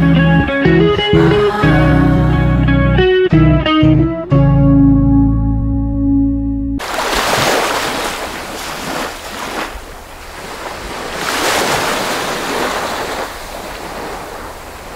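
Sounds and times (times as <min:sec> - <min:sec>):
small waves breaking on sand: 0:06.8 - 0:14.9.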